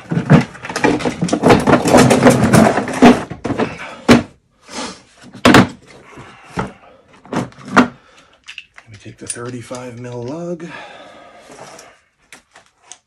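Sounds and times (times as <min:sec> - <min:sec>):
plastic case clattering: 0:00.0 - 0:04.3.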